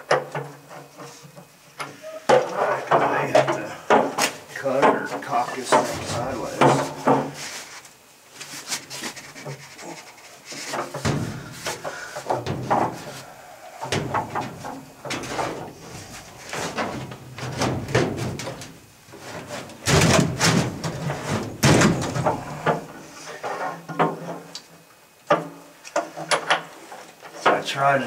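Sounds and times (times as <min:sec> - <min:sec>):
metal rod clunking and scraping: 0:02.3 - 0:07.4, 0:10.5 - 0:23.7.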